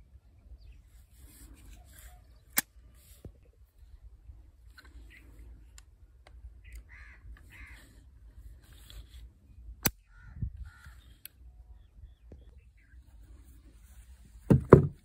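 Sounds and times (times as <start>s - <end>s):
crows cawing: 6.6s - 8.0s, 10.0s - 11.1s.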